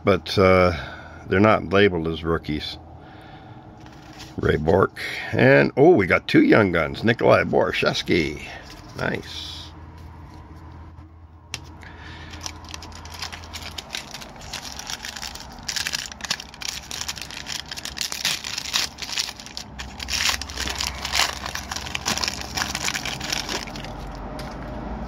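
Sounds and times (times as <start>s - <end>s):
foil wrapper crinkling: 11.6s - 24.6s.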